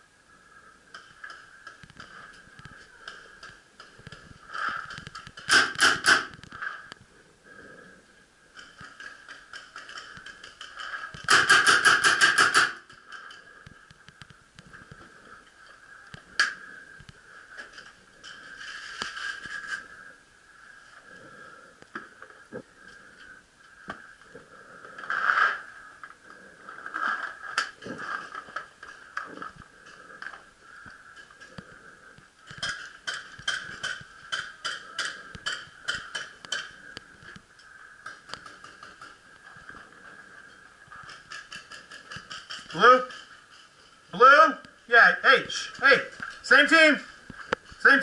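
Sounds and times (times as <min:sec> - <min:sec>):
sharp crack: 0:04.6 - 0:06.9, 0:10.9 - 0:13.0.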